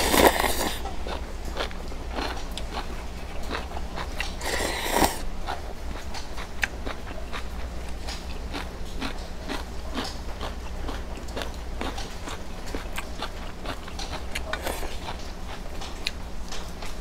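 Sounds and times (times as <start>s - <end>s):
noodle slurp: 0.0s - 0.8s, 2.6s - 5.2s
wet chewing with mouth clicks: 0.0s - 17.0s.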